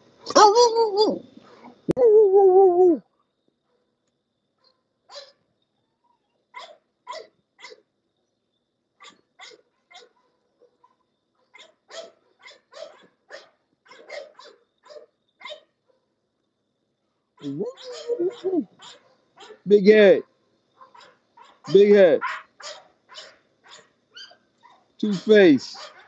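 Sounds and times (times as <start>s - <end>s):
dogs barking: 4.6s - 5.4s, 6.5s - 7.8s, 9.0s - 16.1s, 17.5s - 19.7s, 20.8s - 26.0s.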